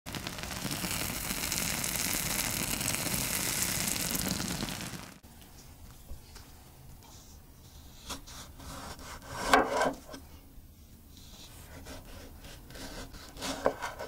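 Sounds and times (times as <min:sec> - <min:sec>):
food sizzling and crackling: 0:00.1 - 0:05.2.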